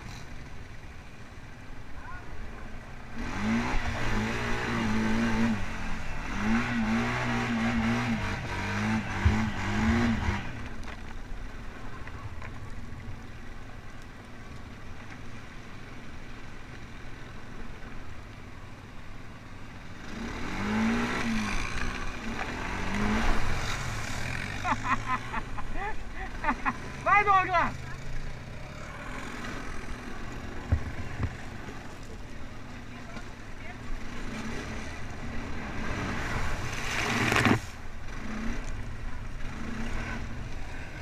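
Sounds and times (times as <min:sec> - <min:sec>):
atv engine revving: 0:02.9 - 0:11.0, 0:19.4 - 0:41.0.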